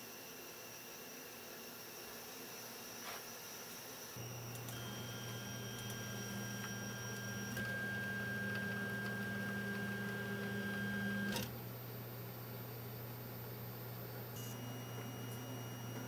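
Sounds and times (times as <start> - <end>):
stepper motors whining: 4.2 - 11.6.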